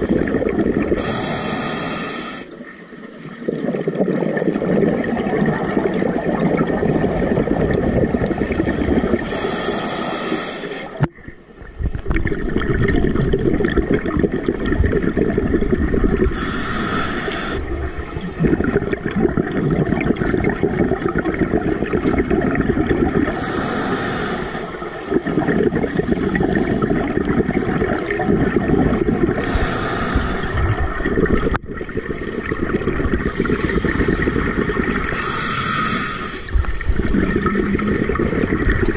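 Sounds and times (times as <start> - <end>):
gurgling exhaled bubbles: 0.0 - 1.9, 3.2 - 11.1, 11.7 - 38.9
regulator hiss on inhale: 1.0 - 2.7, 7.8 - 11.9, 16.3 - 18.5, 23.3 - 27.2, 29.3 - 30.8, 31.9 - 37.1.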